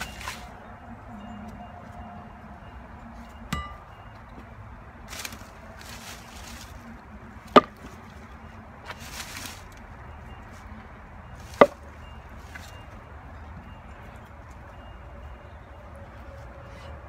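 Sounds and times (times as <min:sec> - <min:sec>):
maul chopping wood: 0:03.5 - 0:03.9, 0:07.5 - 0:07.9, 0:11.5 - 0:11.8
split wood rustling: 0:05.0 - 0:10.6, 0:11.4 - 0:12.7.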